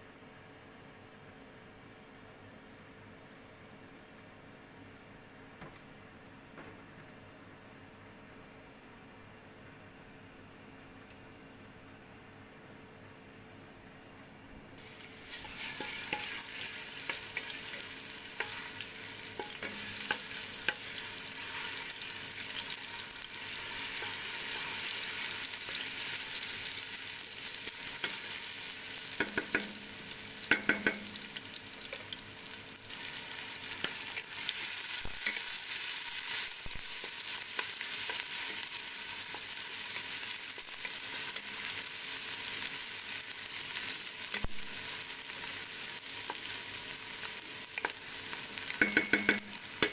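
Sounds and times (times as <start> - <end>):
garlic sizzling in hot oil: 14.8 - 49.9.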